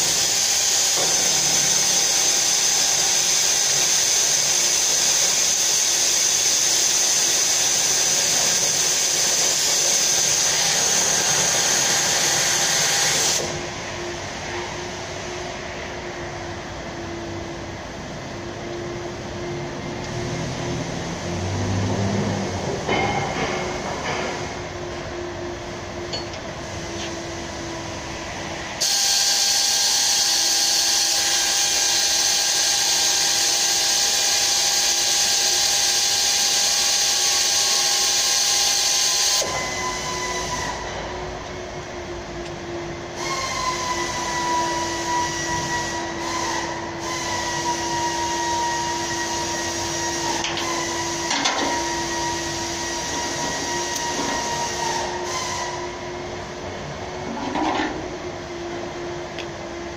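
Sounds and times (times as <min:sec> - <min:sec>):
power tool hissing whir: 0:00.0 - 0:15.4, 0:26.9 - 0:41.0, 0:43.2 - 0:56.0
machine hum with high whine: 0:00.0 - 0:59.9.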